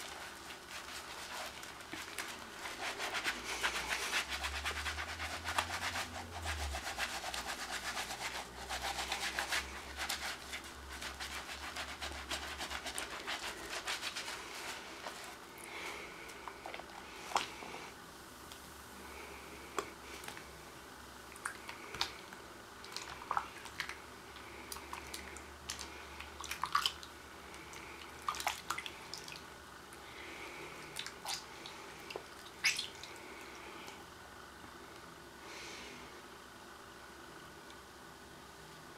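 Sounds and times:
hands being scrubbed: 0.0s - 15.4s.

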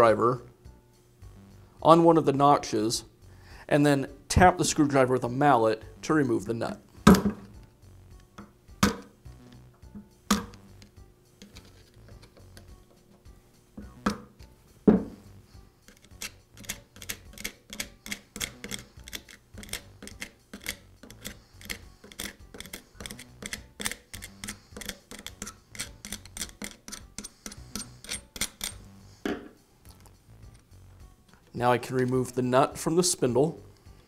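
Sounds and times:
mallet striking screwdriver: 15.9s - 28.8s.

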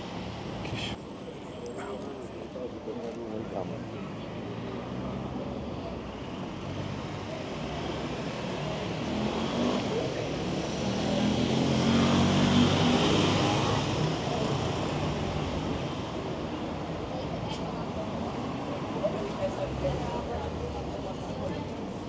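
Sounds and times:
vehicle passing on street: 3.7s - 17.0s.

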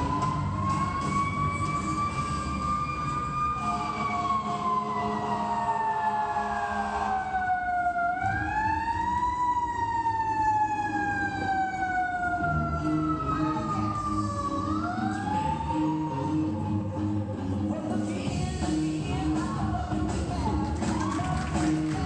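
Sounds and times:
wailing siren-like tone: 0.0s - 17.4s.

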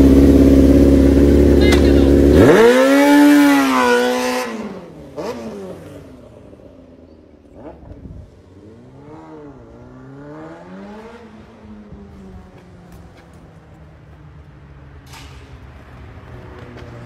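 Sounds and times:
loud engine revving: 0.0s - 6.3s, 7.5s - 11.6s
car engine accelerating: 0.0s - 12.7s.

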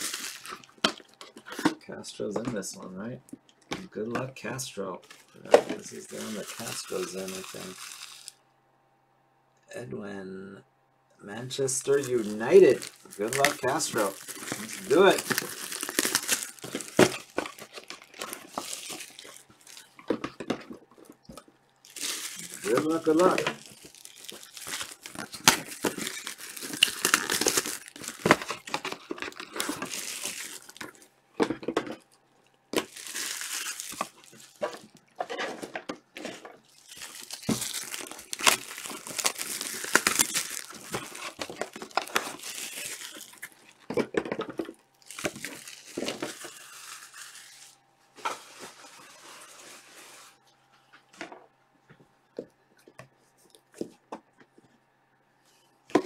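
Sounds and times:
cardboard tearing: 0.0s - 1.7s, 5.1s - 8.3s, 11.9s - 20.0s, 21.9s - 31.0s, 32.8s - 43.6s
plastic wrapping crinkling: 0.0s - 1.8s, 5.0s - 8.4s, 11.7s - 50.4s.

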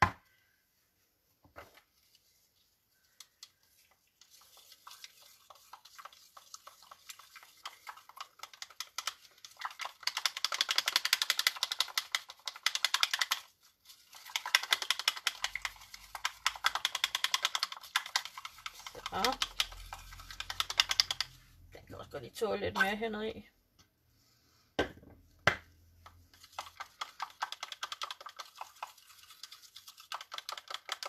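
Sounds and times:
stirrer clicking against container: 3.2s - 21.5s, 26.0s - 31.0s.

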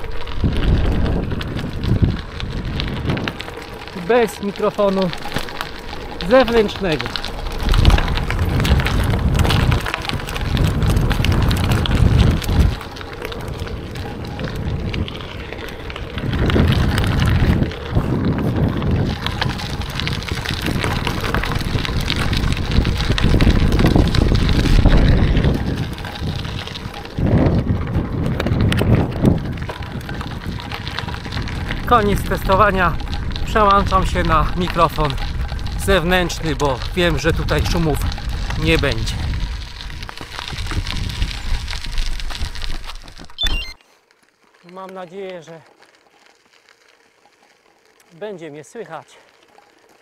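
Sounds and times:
wind buffeting microphone: 0.0s - 43.5s
bicycle tyres on gravel: 0.0s - 50.0s.

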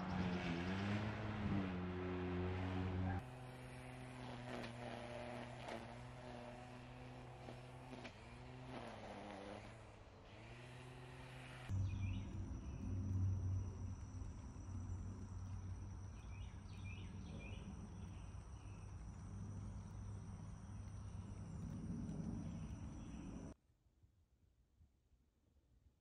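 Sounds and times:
low steady hum: 11.6s - 23.6s
insects high-pitched drone: 11.7s - 23.6s.

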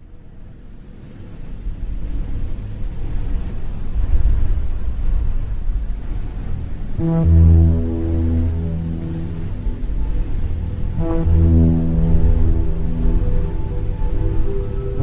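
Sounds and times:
low rumbling background music: 0.0s - 15.0s
sustained low chord: 6.4s - 15.0s.

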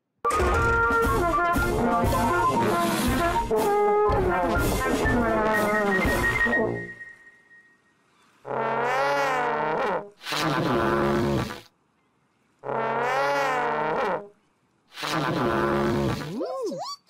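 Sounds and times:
comical brass horn toots: 0.4s - 6.9s.

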